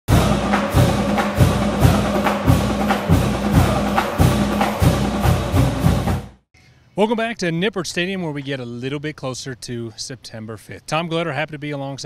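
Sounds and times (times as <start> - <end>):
theme music with percussive beat: 0.1 - 6.4.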